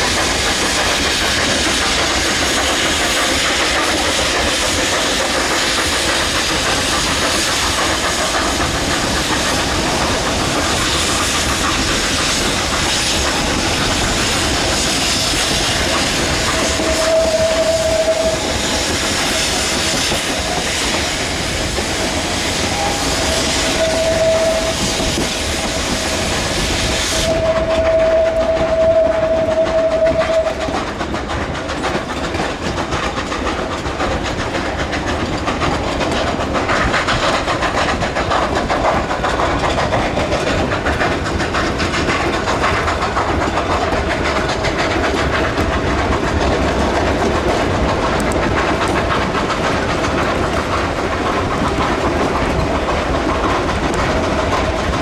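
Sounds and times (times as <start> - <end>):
train cars rumbling: 0.0 - 55.0
wheels clicking over rail joints: 0.0 - 55.0
steam whistle: 16.6 - 18.5, 22.6 - 25.0, 27.0 - 30.6.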